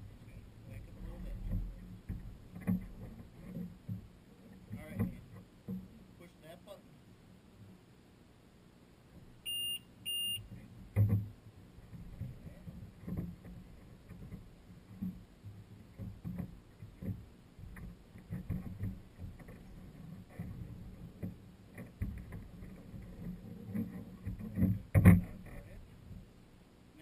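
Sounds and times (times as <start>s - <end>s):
soft knocks: 1.0s - 6.0s
small waves lapping against hull: 9.5s - 26.4s.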